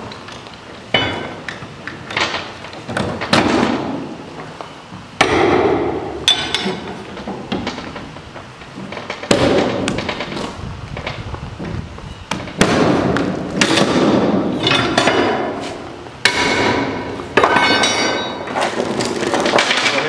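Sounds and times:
sharp metal clanks: 0.9s - 1.5s, 5.2s - 8.1s, 12.5s - 15.6s, 16.2s - 20.0s
steel chains clanking and rattling: 0.9s - 3.9s, 6.2s - 10.4s, 14.5s - 15.5s, 16.3s - 20.0s.

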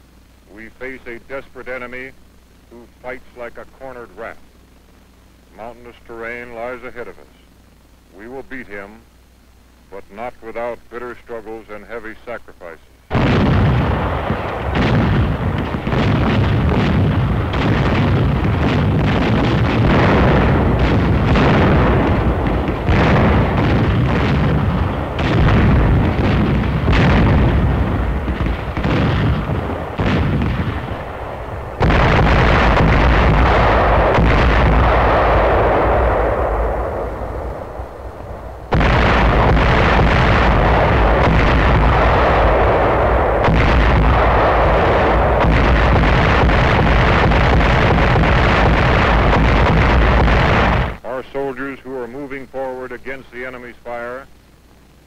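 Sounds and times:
artillery and gunfire blasts: 13.1s - 51.1s.

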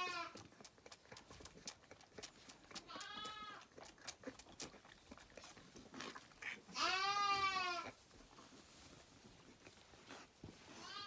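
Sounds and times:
lambs bleating: 0.0s - 0.4s, 2.8s - 3.7s, 6.4s - 8.0s, 10.8s - 11.0s.

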